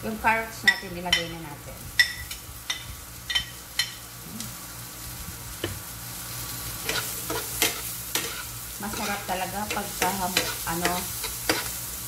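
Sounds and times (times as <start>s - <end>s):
food sizzling in a frying pan: 0.0s - 12.0s
spoon scraping and stirring in pan: 6.8s - 11.8s.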